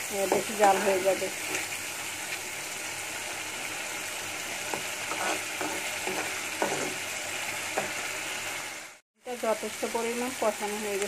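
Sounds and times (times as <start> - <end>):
masala sizzling in a pan: 0.0 - 11.0
spoon scraping a pan: 4.6 - 8.1.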